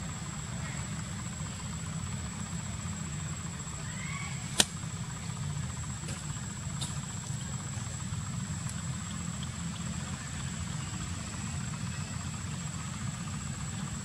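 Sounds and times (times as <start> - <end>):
low mechanical hum: 0.0 - 14.0
sharp click: 4.6 - 4.8.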